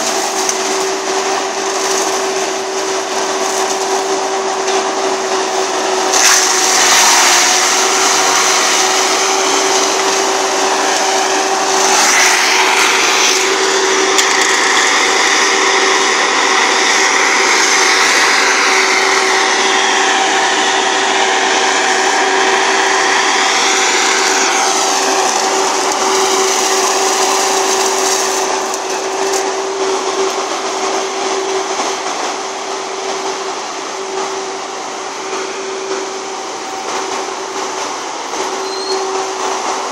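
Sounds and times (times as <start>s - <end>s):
forestry mulcher grinding brush: 0.0s - 39.9s.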